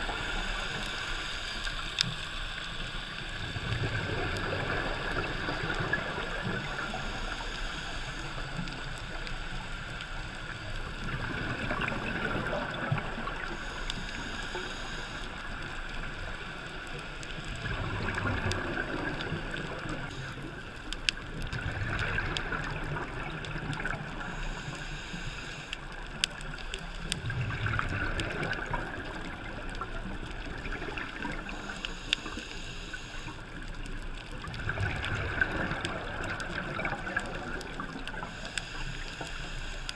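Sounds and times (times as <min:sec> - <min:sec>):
muffled underwater rush: 0:00.0 - 0:39.9
exhaled bubbles: 0:10.5 - 0:14.3, 0:17.5 - 0:24.6, 0:26.6 - 0:32.3, 0:34.0 - 0:38.5
diver breathing on regulator: 0:13.4 - 0:15.4, 0:24.1 - 0:25.9, 0:31.5 - 0:33.5, 0:38.1 - 0:39.9.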